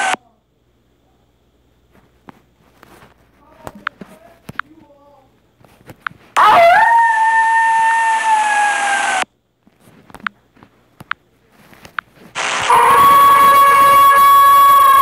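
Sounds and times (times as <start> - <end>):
recorded wolf howl: 6.4 - 9.2
steady high tone: 12.4 - 15.0.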